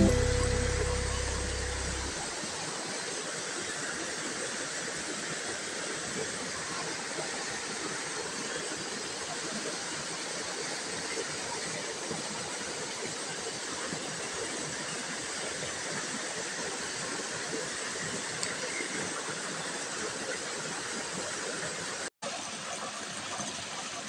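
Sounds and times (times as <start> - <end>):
stream pouring over rocks: 15.1 - 24.0.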